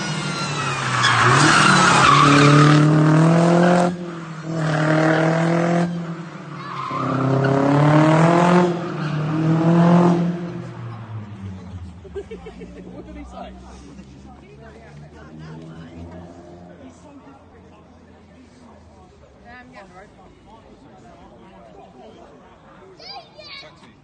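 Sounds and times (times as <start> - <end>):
car engine revving hard: 0.0 - 6.2, 7.0 - 11.4.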